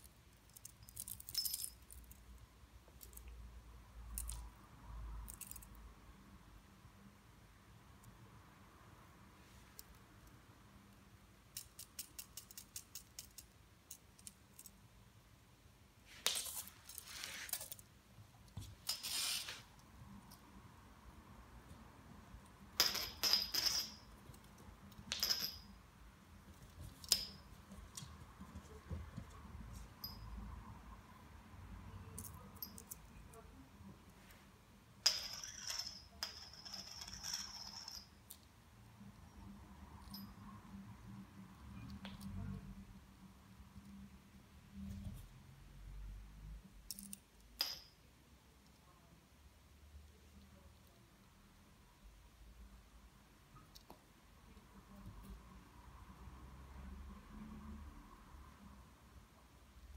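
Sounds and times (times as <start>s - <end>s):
rustling scraping noises: 16.1s - 17.8s, 18.6s - 19.8s.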